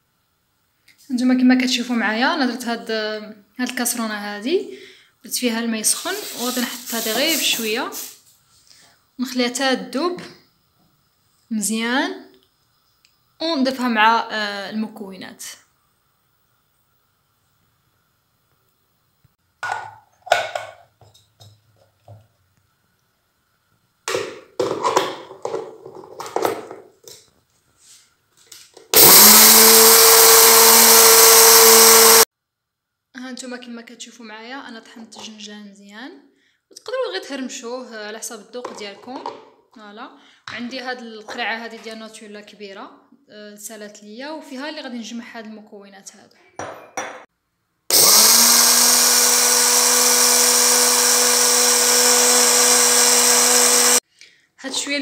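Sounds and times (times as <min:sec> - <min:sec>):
plastic clatter: 0:24.1 - 0:27.2
electric grinder grinding seeds: 0:28.9 - 0:32.3, 0:47.9 - 0:54.0.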